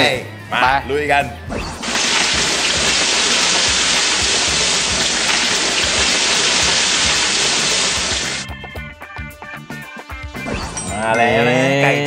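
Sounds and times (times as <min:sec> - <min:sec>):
chicken deep-frying in oil: 0:01.8 - 0:08.4.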